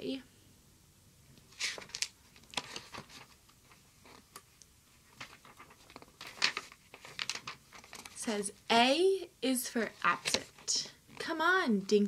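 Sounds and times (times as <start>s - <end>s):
book pages rustling: 1.4s - 8.6s, 9.8s - 11.4s.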